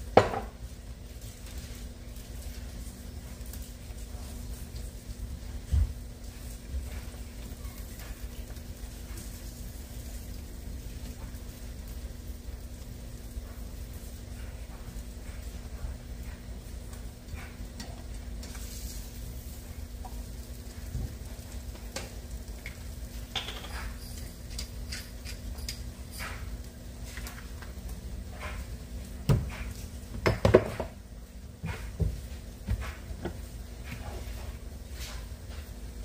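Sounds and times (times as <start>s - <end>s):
steady low hum: 0.0s - 36.0s
knocks on pan: 0.1s - 0.5s, 23.3s - 23.8s, 30.2s - 30.9s.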